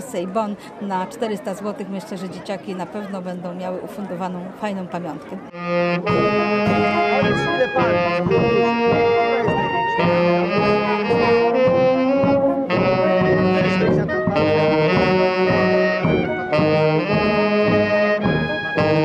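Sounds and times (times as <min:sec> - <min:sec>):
brass band playing: 0:05.5 - 0:19.0.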